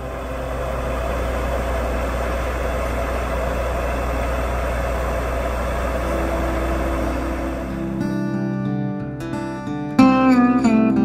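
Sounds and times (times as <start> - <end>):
truck engine droning: 0.0 - 8.8.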